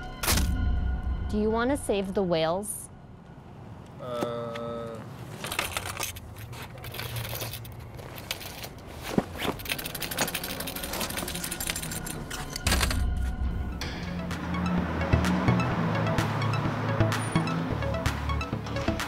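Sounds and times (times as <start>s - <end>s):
buckles clinking: 3.8s - 13.3s
backpack rustling: 4.9s - 13.3s.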